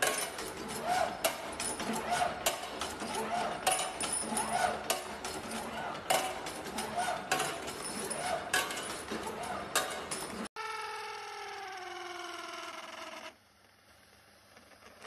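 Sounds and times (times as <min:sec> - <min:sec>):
grinding wheel whine: 0:10.5 - 0:13.6.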